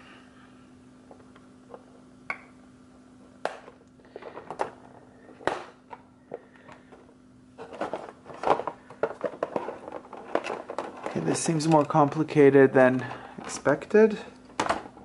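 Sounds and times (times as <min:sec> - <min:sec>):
faint steady hum: 0:00.0 - 0:15.0
rustling packaging: 0:07.6 - 0:12.4.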